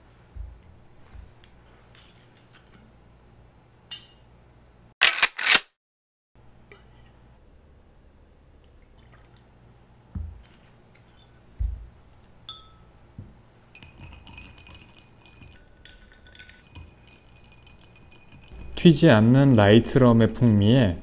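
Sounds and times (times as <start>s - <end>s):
glass clinking: 3.9s - 4.3s, 12.4s - 13.0s, 16.3s - 18.8s.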